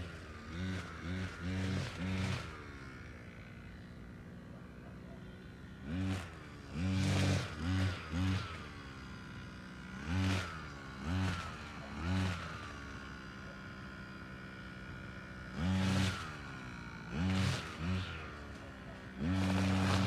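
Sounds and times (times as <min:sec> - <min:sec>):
brush cutter engine revving: 0:00.0 - 0:20.0.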